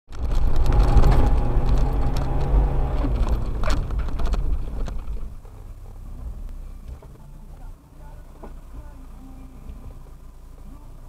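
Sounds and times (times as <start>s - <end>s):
knocks and rattles: 0.1s - 5.6s
low engine rumble: 0.1s - 11.0s.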